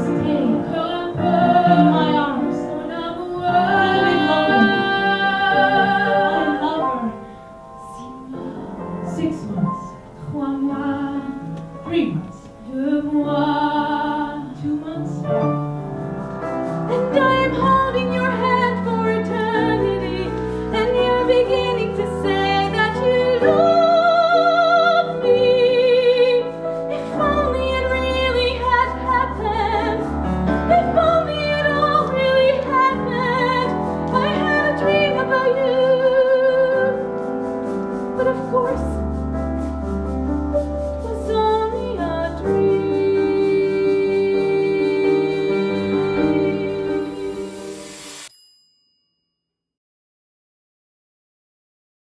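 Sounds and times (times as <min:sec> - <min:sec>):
woman singing operatically: 0:00.0 - 0:07.2, 0:07.8 - 0:15.3, 0:17.0 - 0:30.0, 0:30.7 - 0:37.0, 0:41.1 - 0:47.5
instrumental accompaniment: 0:00.0 - 0:48.5.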